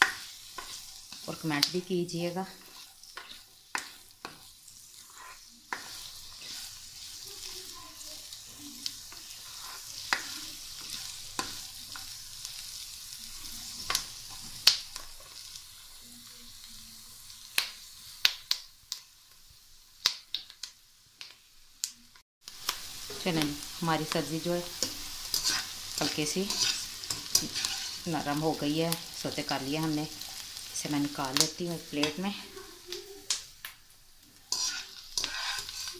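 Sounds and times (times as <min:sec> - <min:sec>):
spatula scraping a pan: 0:00.0 - 0:12.6, 0:24.2 - 0:28.3, 0:34.3 - 0:35.9
vegetables sizzling in oil: 0:00.0 - 0:35.9.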